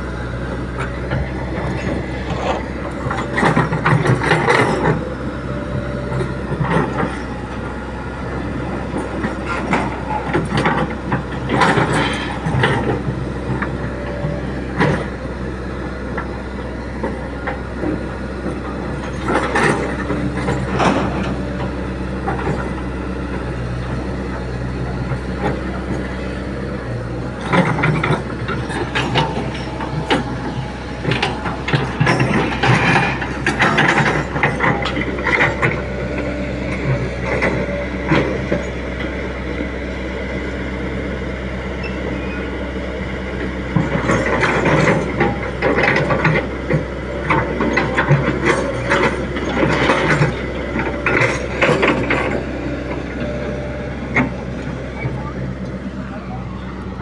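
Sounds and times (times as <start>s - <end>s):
excavator diesel engine running: 0.0s - 57.0s
metallic clanking and rattling: 0.8s - 5.2s, 8.6s - 15.2s, 27.2s - 38.7s, 43.7s - 55.2s.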